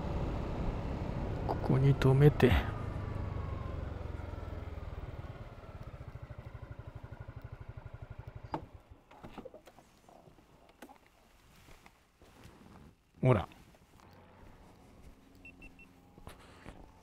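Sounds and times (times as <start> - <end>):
scooter engine idling: 0.0 - 8.9.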